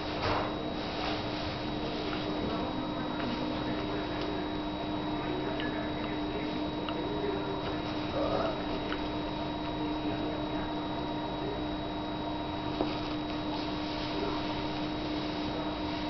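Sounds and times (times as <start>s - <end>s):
electrical hum with hiss: 0.0s - 16.0s.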